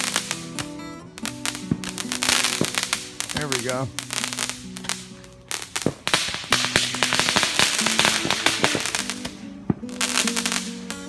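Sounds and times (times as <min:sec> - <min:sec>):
background music: 0:00.0 - 0:11.0
fireworks crackling and popping: 0:00.0 - 0:11.0
firework bang: 0:05.6 - 0:10.7.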